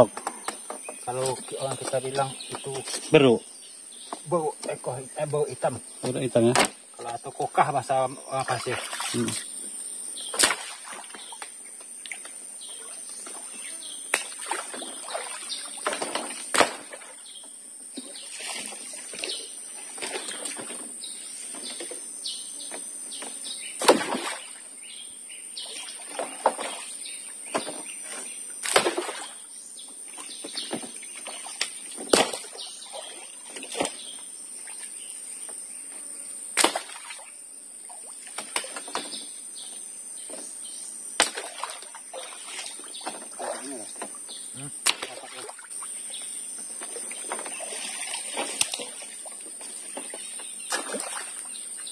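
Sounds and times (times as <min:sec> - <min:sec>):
bird calls: 0:00.0 - 0:37.3, 0:37.9 - 0:51.9
high insect drone: 0:00.0 - 0:51.9
stick smacking water surface: 0:10.3 - 0:11.2, 0:14.1 - 0:14.9, 0:15.8 - 0:17.1, 0:23.8 - 0:24.4, 0:28.6 - 0:29.3, 0:31.6 - 0:32.6, 0:36.6 - 0:37.1, 0:41.2 - 0:41.9, 0:44.8 - 0:45.4, 0:50.7 - 0:51.2.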